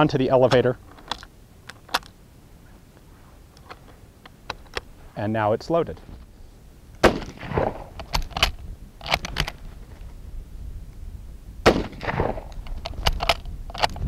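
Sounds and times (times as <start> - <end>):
rifle bolt metallic clacks: 0.4 - 2.2, 7.0 - 9.7, 11.7 - 14.0
rifle shot with echo: 7.0 - 8.3, 11.6 - 13.1.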